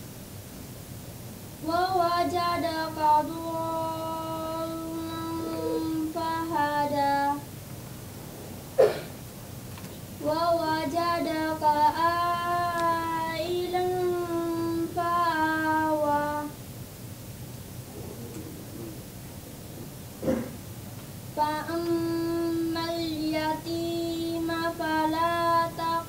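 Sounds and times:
girl chanting solo: 5.1s - 6.4s.

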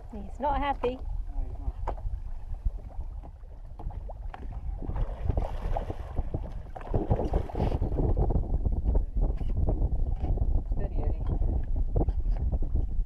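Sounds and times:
wind rumble on microphone: 0.0s - 13.0s
water splashing against boat hull: 0.4s - 8.3s.

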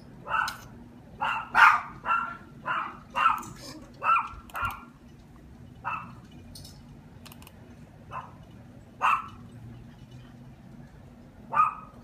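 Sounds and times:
dog barking: 0.2s - 0.6s, 1.2s - 4.8s, 5.8s - 6.2s, 8.1s - 8.4s, 9.0s - 9.4s, 11.5s - 12.0s.

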